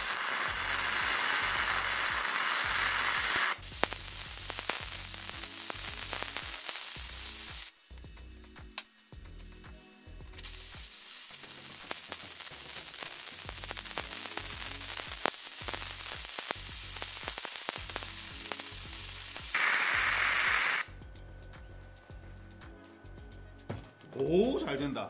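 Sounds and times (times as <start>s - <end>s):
spatter pops: 0.0s - 7.7s, 10.3s - 20.9s
welding arc sizzling: 0.0s - 20.9s.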